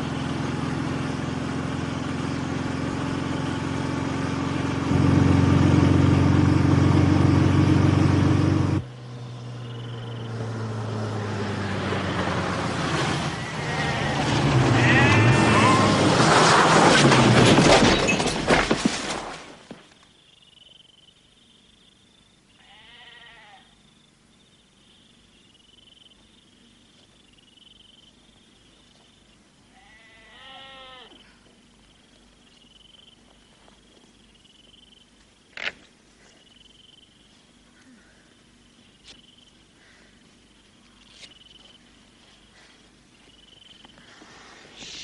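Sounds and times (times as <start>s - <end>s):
farm animal bleating: 13.4s - 15.9s, 22.6s - 23.8s, 29.7s - 31.4s.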